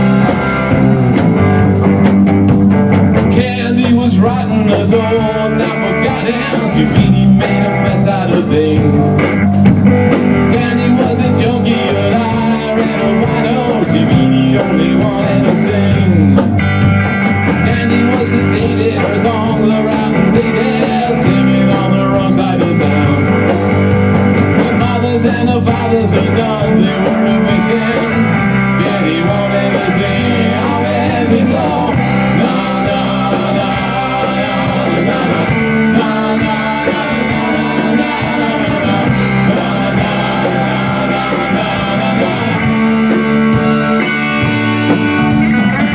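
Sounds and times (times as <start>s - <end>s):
bass guitar: 0.0s - 45.9s
drum kit: 0.0s - 45.9s
electric guitar: 0.0s - 45.9s.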